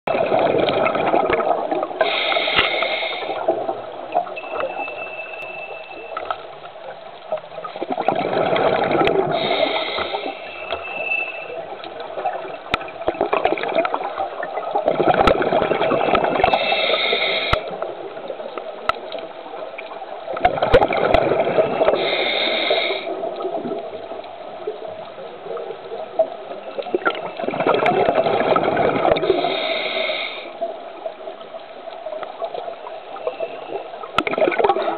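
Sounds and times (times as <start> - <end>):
regulator breathing bubbles gurgling: 0.1 - 3.9, 7.7 - 17.9, 20.3 - 24.1, 26.7 - 30.8.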